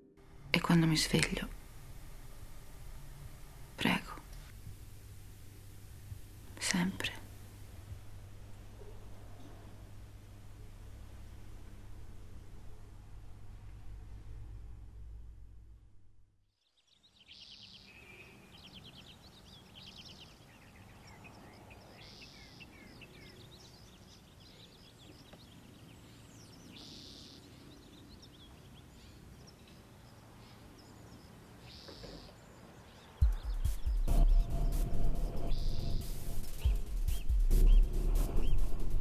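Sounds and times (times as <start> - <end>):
birds chirping: 0.0 - 10.7, 16.7 - 39.0
low steady hum: 0.0 - 16.3, 33.2 - 39.0
loud music: 33.2 - 39.0.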